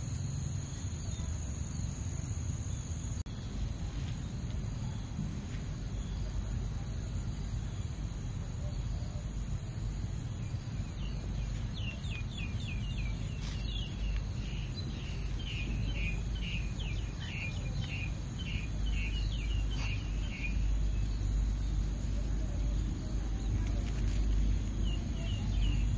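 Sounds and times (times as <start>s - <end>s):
low background rumble: 0.0s - 25.9s
small bird chirping: 10.4s - 21.8s.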